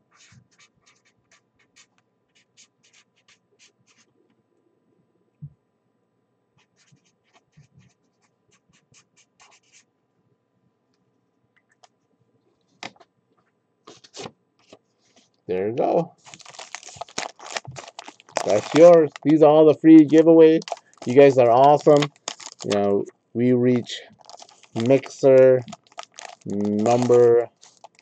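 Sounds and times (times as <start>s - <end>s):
pen scratching on paper: 0.1s - 4.1s, 6.6s - 9.9s.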